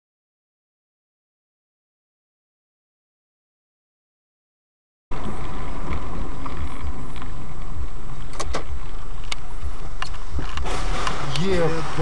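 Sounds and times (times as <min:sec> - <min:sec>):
car road and engine rumble: 0:05.1 - 0:12.0.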